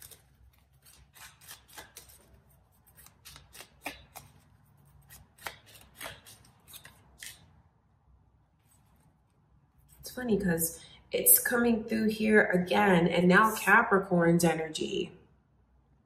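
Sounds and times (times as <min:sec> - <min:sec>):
cards clicking and rustling: 0:00.0 - 0:07.5.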